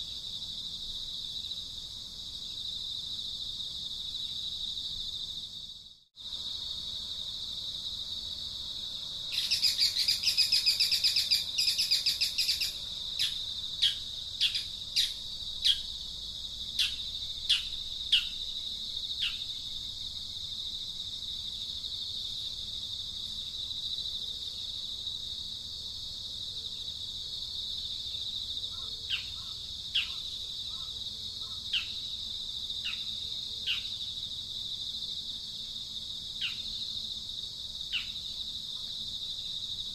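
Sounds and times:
high-pitched insect drone: 0:08.7 - 0:20.4.

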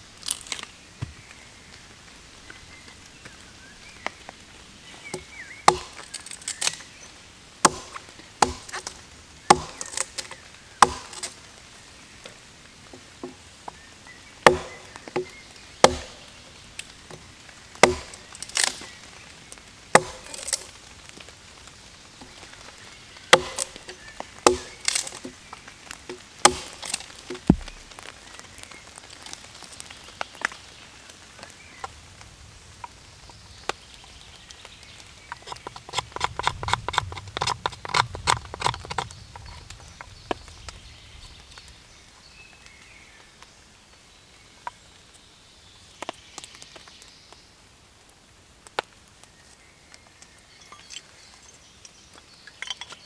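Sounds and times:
hatchet chopping firewood: 0:05.0 - 0:07.0, 0:07.6 - 0:11.4, 0:14.4 - 0:16.4, 0:17.0 - 0:19.1, 0:19.9 - 0:20.8, 0:23.3 - 0:28.1, 0:35.3 - 0:39.6.

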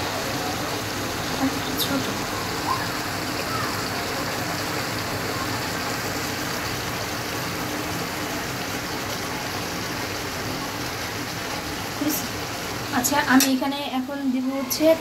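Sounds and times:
curry sizzling in wok: 0:00.0 - 0:15.0.

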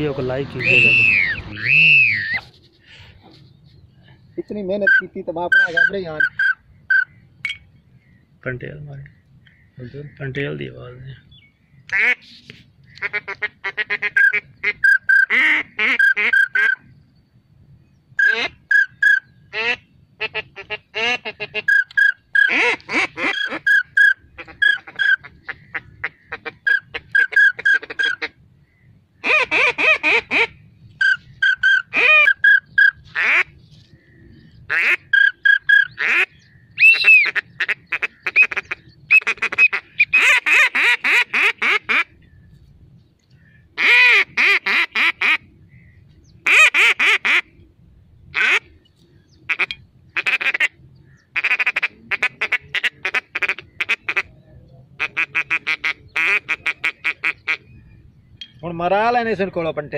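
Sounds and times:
duck calls quacking: 0:04.8 - 0:07.2, 0:11.9 - 0:12.3, 0:12.9 - 0:16.8, 0:18.2 - 0:28.4, 0:29.2 - 0:33.5, 0:34.7 - 0:42.1, 0:43.8 - 0:47.5, 0:48.4 - 0:48.7, 0:49.5 - 0:54.3, 0:55.0 - 0:57.7.

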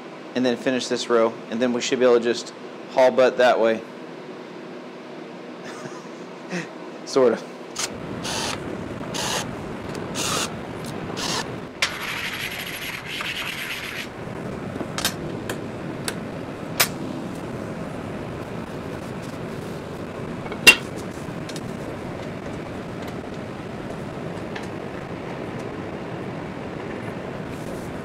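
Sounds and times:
cordless drill deburring steel: 0:07.8 - 0:09.5, 0:10.2 - 0:10.5, 0:11.2 - 0:11.5
rag rubbing on metal plate: 0:11.9 - 0:14.1.

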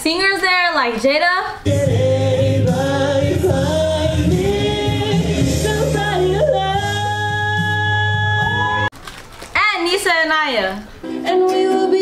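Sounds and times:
held chords accompaniment: 0:01.7 - 0:08.9
woman singing into a microphone: 0:04.9 - 0:08.9, 0:11.1 - 0:12.0.

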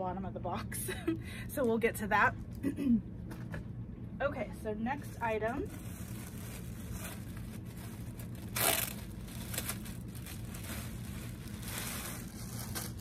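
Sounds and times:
plastic bag crinkling: 0:05.6 - 0:13.0.

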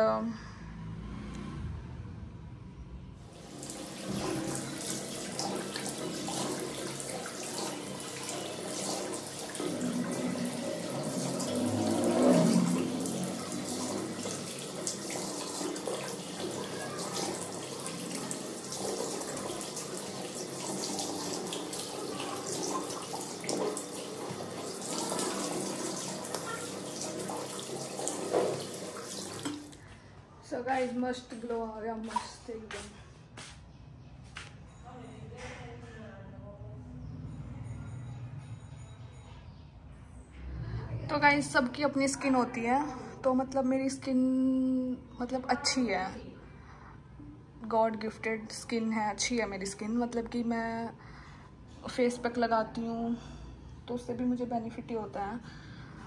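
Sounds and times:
tap water running into sink: 0:03.2 - 0:29.8
splashing water rinsing face: 0:03.2 - 0:29.9.

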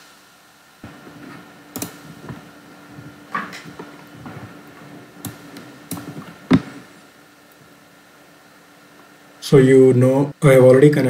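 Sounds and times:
low electrical hum: 0:00.0 - 0:11.0
computer mouse clicks: 0:01.2 - 0:02.4, 0:03.4 - 0:06.8.

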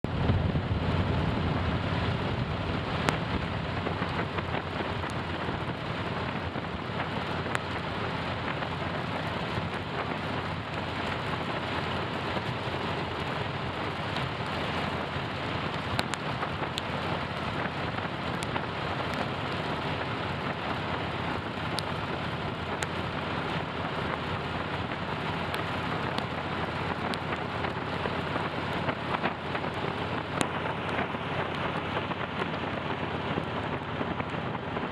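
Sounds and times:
rain and rushing air hiss: 0:00.1 - 0:34.9
raindrops ticking: 0:14.0 - 0:32.6.

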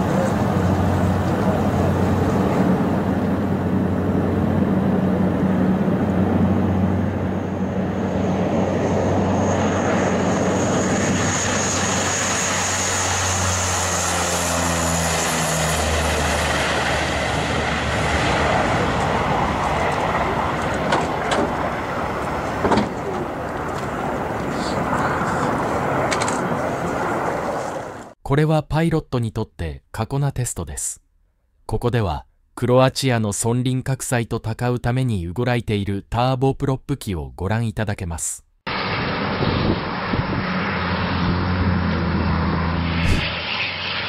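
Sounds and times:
high turbine whine: 0:00.0 - 0:28.2, 0:38.7 - 0:44.0
low propeller drone: 0:00.0 - 0:28.2, 0:38.7 - 0:44.0.

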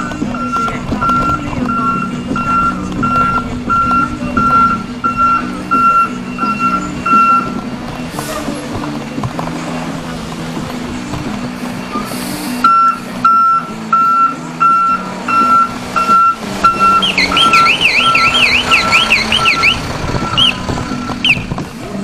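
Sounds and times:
truck backup beeper: 0:00.0 - 0:08.5, 0:11.7 - 0:21.6
diesel engine droning: 0:00.0 - 0:22.0
short hiss: 0:12.0 - 0:12.6.

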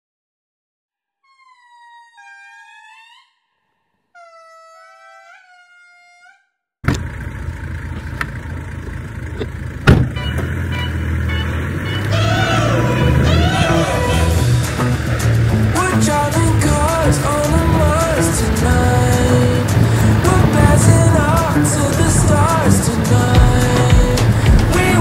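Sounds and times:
low outdoor rumble: 0:06.9 - 0:25.0
high whistle-like call: 0:10.2 - 0:14.6.

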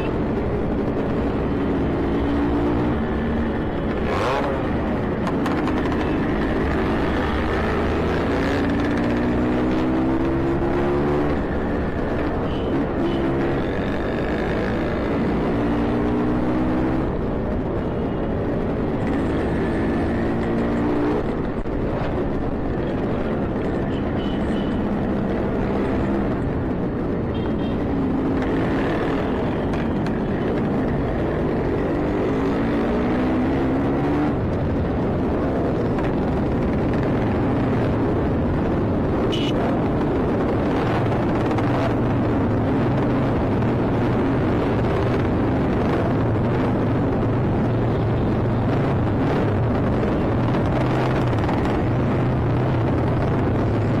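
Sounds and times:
motorcycle engine revving: 0:01.2 - 0:11.9.

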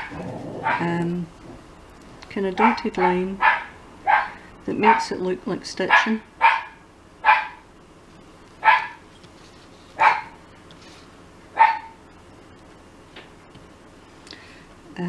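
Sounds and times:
dog barking: 0:00.0 - 0:00.9, 0:02.6 - 0:04.4, 0:05.9 - 0:07.6, 0:08.6 - 0:09.0, 0:10.0 - 0:10.4, 0:11.6 - 0:12.0.

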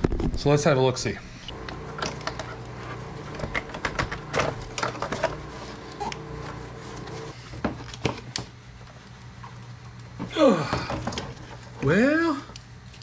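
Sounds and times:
steady low hum: 0:00.5 - 0:13.0.

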